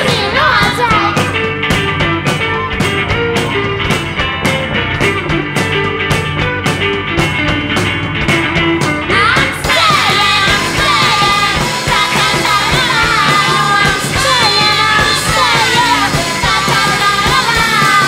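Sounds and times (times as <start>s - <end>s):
women singing: 0.0s - 1.3s, 9.1s - 18.0s
drums and cymbals: 0.0s - 18.0s
live rock band playing: 0.0s - 18.0s.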